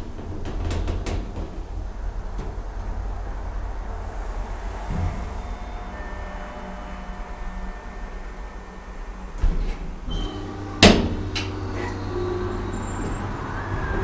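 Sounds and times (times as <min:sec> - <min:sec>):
steady low hum: 0:00.0 - 0:14.0
elevator thump: 0:04.8 - 0:06.0, 0:09.4 - 0:14.0
elevator clunk: 0:04.8 - 0:14.0.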